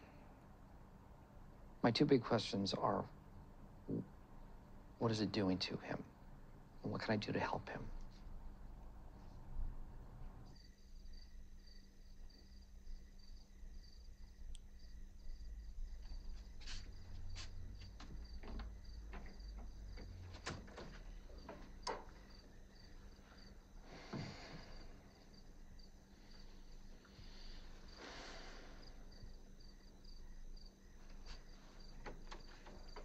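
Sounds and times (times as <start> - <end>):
crickets chirping: 0.0 - 33.0
soft rustle: 16.0 - 18.2
light clicks and knocks: 16.6 - 22.4, 31.1 - 33.0.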